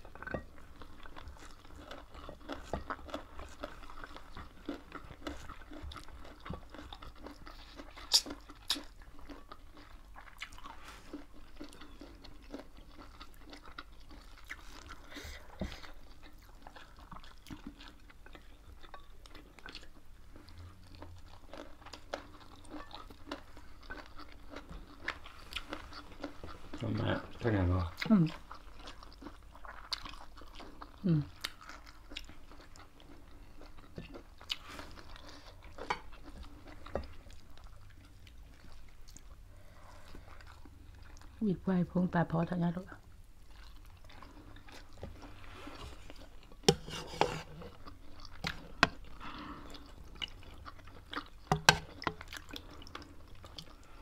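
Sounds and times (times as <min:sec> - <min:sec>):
chewing and crunching: 0:00.0 - 0:41.6, 0:42.9 - 0:54.0
wet mouth clicks: 0:08.1 - 0:08.8.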